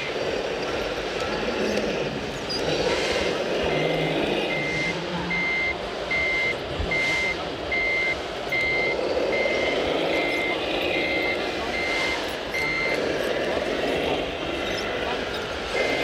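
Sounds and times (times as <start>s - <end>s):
high-pitched reversing beep: 3.6s - 15.2s.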